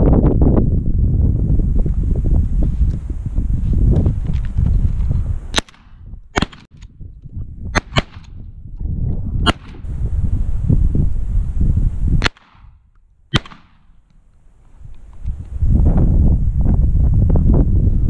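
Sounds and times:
wind buffeting microphone: 0.0s - 18.0s
shotgun cracks: 5.5s - 6.7s, 12.2s - 12.7s, 13.3s - 14.1s.

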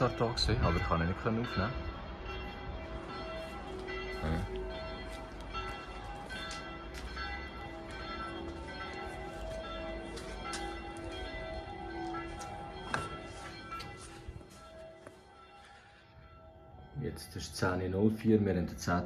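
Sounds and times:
church bells ringing: 0.0s - 19.0s.

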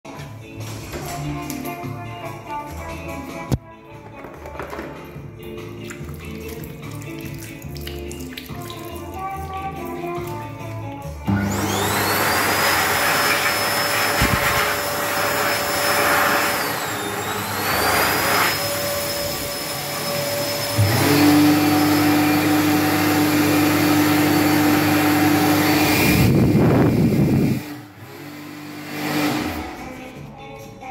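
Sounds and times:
hand dryer low hum: 11.2s - 30.0s
hand dryer motor whine: 11.2s - 30.0s.

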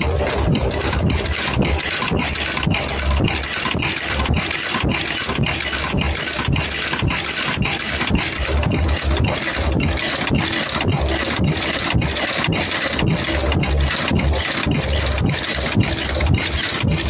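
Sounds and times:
low pulsing thumps: 0.0s - 3.4s, 8.1s - 17.0s
welding machine running: 0.0s - 17.0s.

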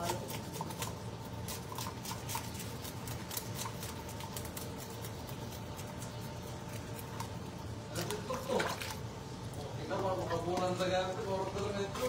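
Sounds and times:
knife scraping fish: 0.0s - 7.4s
steady low hum: 0.0s - 12.0s.

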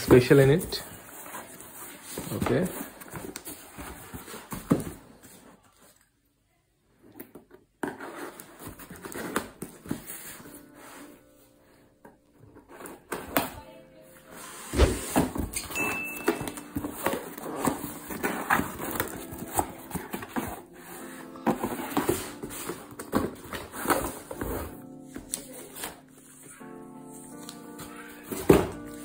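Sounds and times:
soft background music: 0.0s - 5.0s, 7.9s - 29.0s.

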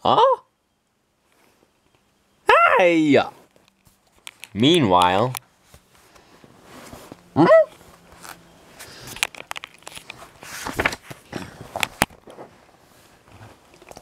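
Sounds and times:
paper pages rustling: 3.4s - 13.6s.

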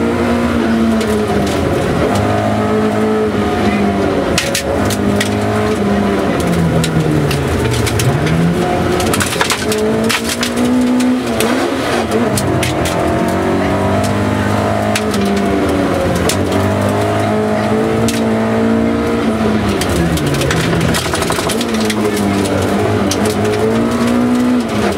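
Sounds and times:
rally car engine revving: 0.0s - 24.9s
gravel striking car body: 9.0s - 11.5s, 19.7s - 24.9s.

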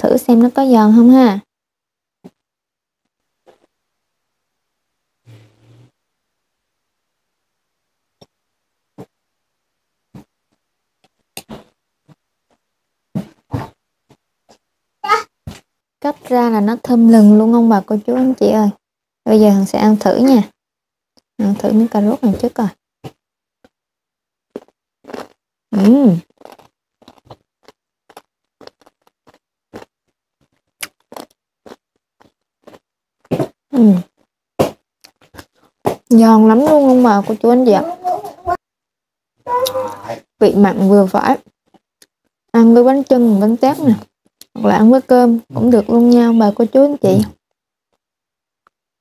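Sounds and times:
chewing crisp carrot crunches: 24.6s - 25.4s, 26.3s - 29.9s, 30.8s - 32.8s.

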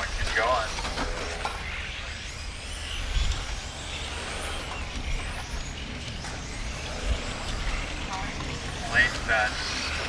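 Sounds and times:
electric toy cars whining: 0.0s - 10.0s.

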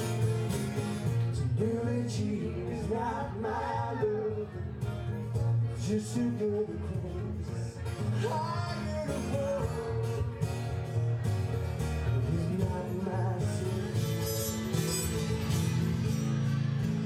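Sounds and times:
strummed acoustic guitar: 0.0s - 17.0s
man singing: 1.3s - 5.0s, 5.6s - 10.6s, 12.0s - 14.7s.

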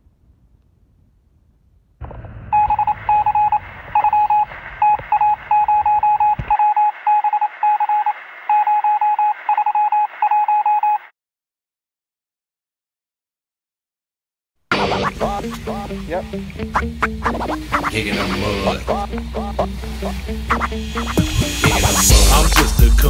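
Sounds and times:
electronic beeping: 2.5s - 11.1s, 14.7s - 22.2s
steady hiss: 14.8s - 23.0s.

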